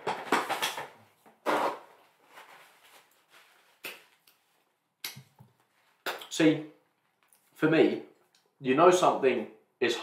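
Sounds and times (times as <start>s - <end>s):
knocks and rustles of handling: 0.0s - 4.6s.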